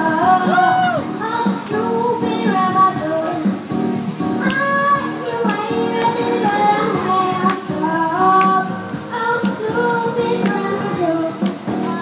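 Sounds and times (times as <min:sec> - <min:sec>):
girl singing into a microphone: 0:00.0 - 0:03.6, 0:04.4 - 0:12.0
instrumental accompaniment with beat: 0:00.0 - 0:12.0.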